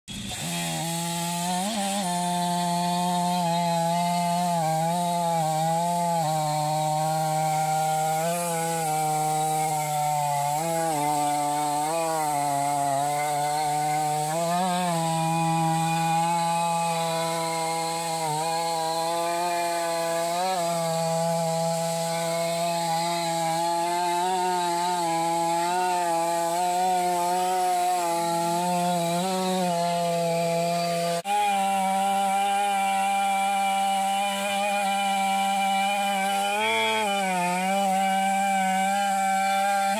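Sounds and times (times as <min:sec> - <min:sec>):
chainsaw cutting log: 0:00.1 - 0:39.9.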